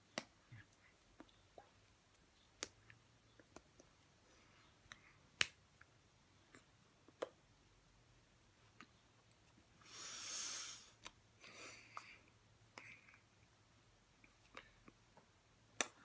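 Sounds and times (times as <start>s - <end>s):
soft breathy hiss: 8.5s - 15.0s.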